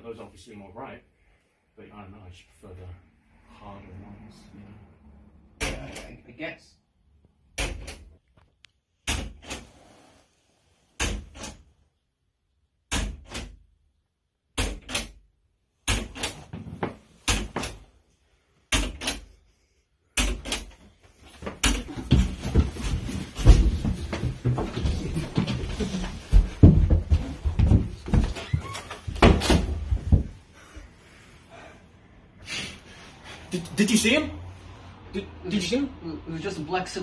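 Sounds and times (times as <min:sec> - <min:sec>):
scuffling and thumping: 0:21.1 - 0:30.5.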